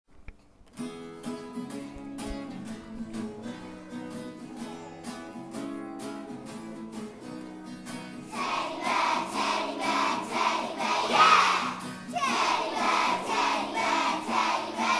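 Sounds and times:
children singing: 8.3 - 14.9.

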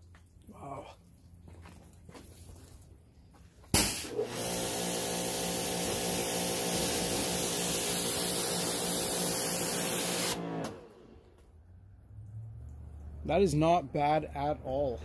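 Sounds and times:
pressure washer motor hum: 3.7 - 11.4
water jet spraying car: 3.8 - 10.5.

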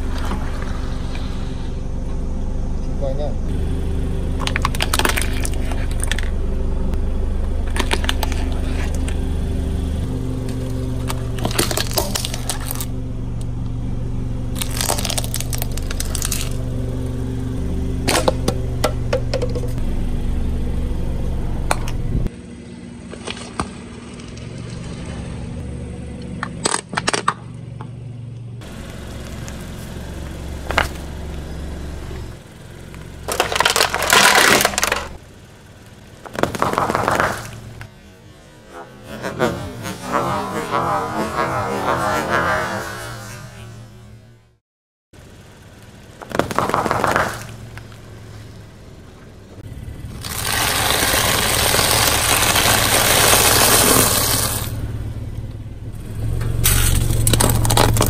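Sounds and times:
steady low hum: 0.0 - 26.7
plastic cracking and crunching: 11.4 - 12.9, 14.6 - 16.6, 33.3 - 35.1, 50.1 - 54.7, 57.0 - 58.0.

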